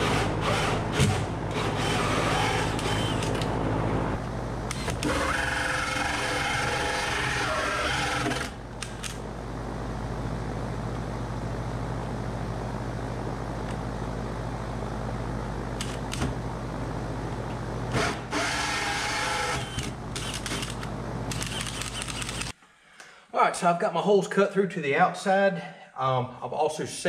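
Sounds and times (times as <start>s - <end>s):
cordless drill boring wood: 0.0s - 3.4s, 4.7s - 8.6s, 17.9s - 22.5s.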